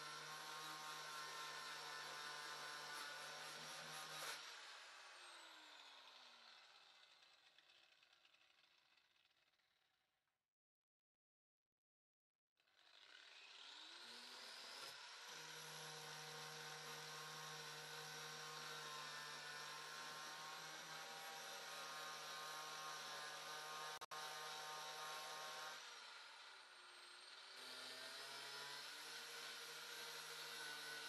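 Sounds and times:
angle grinder grinding metal: 0.0 - 5.6.

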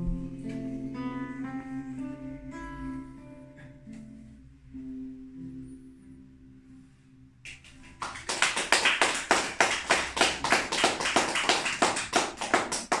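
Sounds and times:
audience applause: 7.6 - 13.0.

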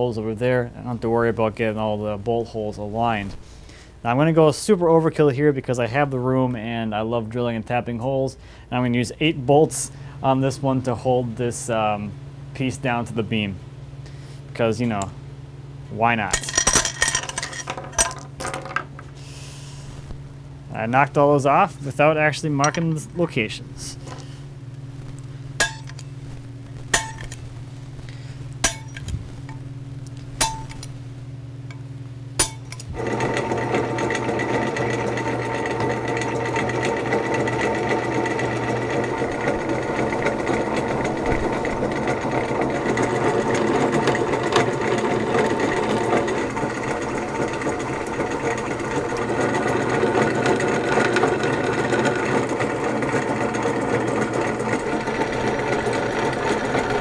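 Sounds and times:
low hum: 13.7 - 50.1
bolts clinking on steel plate: 16.4 - 18.9, 25.6 - 26.0, 27.0 - 27.4, 28.6 - 29.1, 32.4 - 32.9
drill press boring through steel: 32.4 - 57.0.

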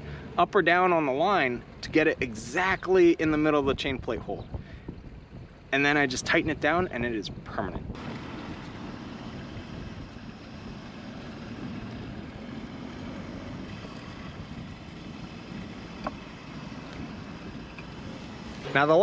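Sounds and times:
wind noise on microphone: 1.9 - 19.0.

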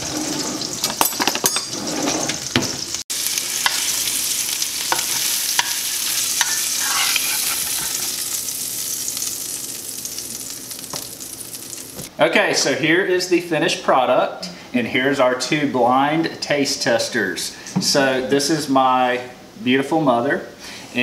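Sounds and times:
fish sizzling in a frying pan: 2.4 - 12.1
spatula scraping and tapping pan: 4.9 - 8.2.

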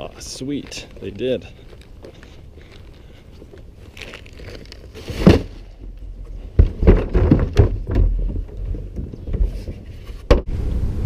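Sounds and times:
plastic garbage cart knocking: 6.6 - 8.9.

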